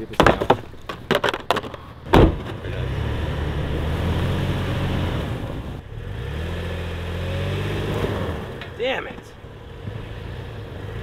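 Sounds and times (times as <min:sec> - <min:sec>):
short thump: 0:00.2 - 0:02.7
truck engine pulling in snow: 0:02.6 - 0:08.8.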